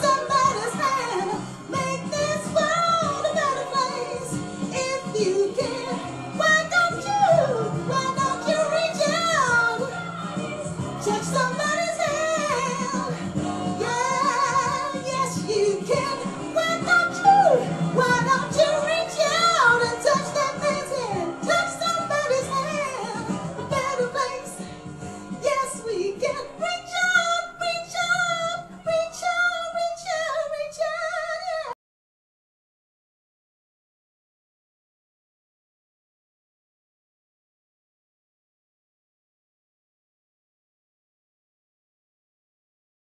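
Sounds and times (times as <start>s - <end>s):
pop backing track: 0.0s - 31.7s
woman singing: 0.0s - 31.8s.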